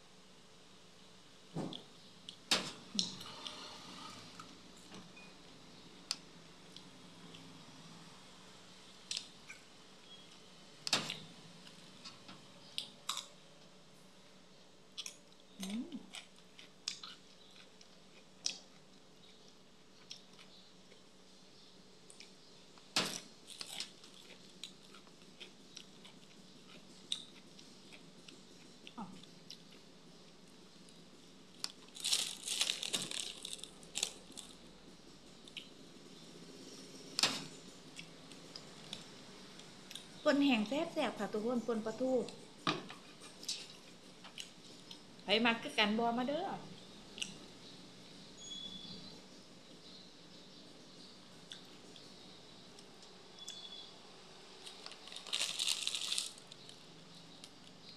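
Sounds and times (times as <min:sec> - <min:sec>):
person chewing crunchy food: 0:14.9 - 0:19.4, 0:23.5 - 0:29.9, 0:31.6 - 0:34.6, 0:54.6 - 0:56.8
plastic bag crinkling: 0:31.8 - 0:34.6, 0:54.8 - 0:56.6.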